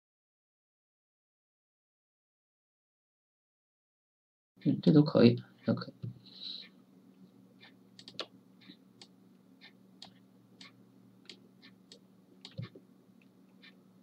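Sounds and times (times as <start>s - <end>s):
low steady hum: 4.6s - 14.0s
computer mouse clicks: 8.0s - 9.1s, 10.0s - 12.8s.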